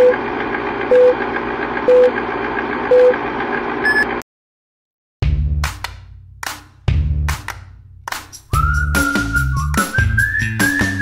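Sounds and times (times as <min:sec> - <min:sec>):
short beep: 0:03.8 - 0:04.2.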